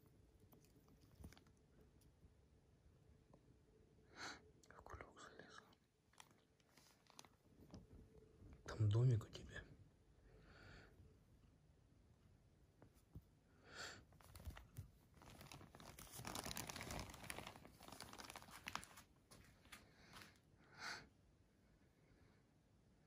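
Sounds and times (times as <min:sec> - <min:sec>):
plastic bag crinkling: 0:06.1 - 0:07.5, 0:14.2 - 0:19.1.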